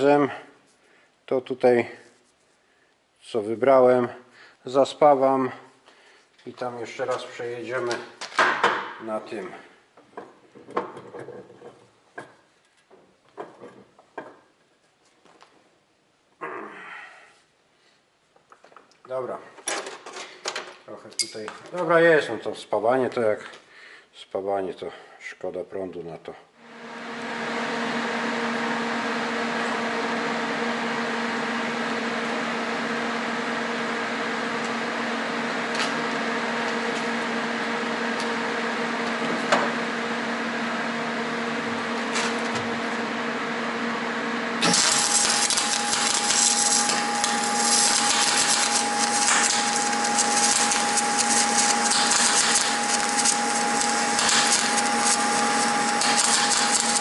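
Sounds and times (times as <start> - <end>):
welding arc crackling: 44.6 - 57.0.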